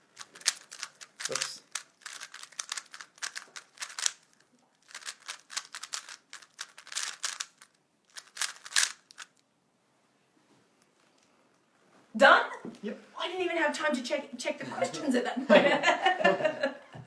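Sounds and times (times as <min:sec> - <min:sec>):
puzzle cube clicking: 0:00.2 - 0:09.4.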